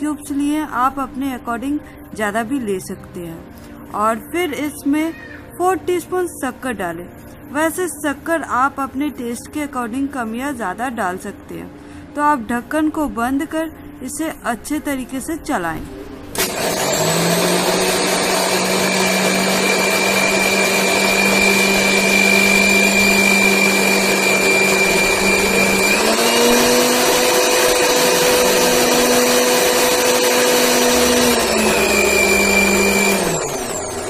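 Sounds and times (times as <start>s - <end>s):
mixer grinder motor whine: 16.3s - 34.0s.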